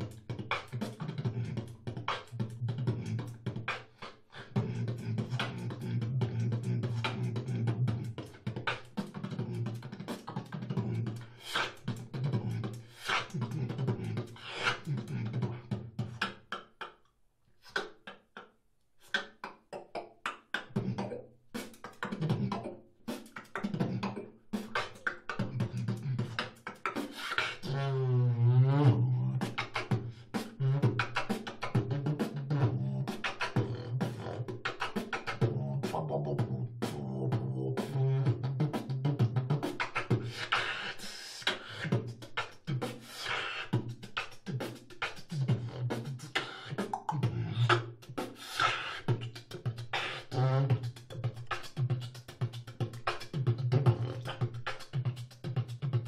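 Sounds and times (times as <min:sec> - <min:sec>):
wobbling vocal tone: 0:00.0 - 0:17.1, 0:19.1 - 0:56.0
vocal beatboxing: 0:00.0 - 0:56.0.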